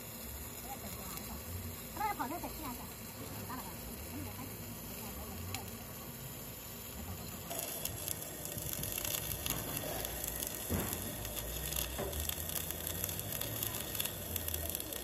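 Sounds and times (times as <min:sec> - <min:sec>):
welding arc crackling: 0:00.0 - 0:15.0.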